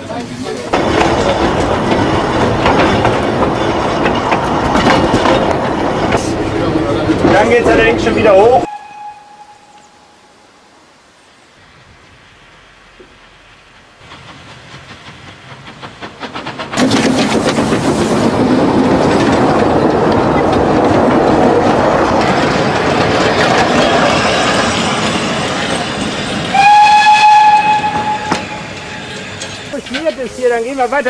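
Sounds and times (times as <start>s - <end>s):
clattering train wheels: 0.1s - 8.7s, 14.0s - 31.0s
steam locomotive chuffing: 0.6s - 8.9s, 13.7s - 31.0s
steam whistle blast: 8.7s - 10.3s, 26.5s - 28.7s
rush of steam: 10.0s - 20.2s, 20.8s - 31.0s.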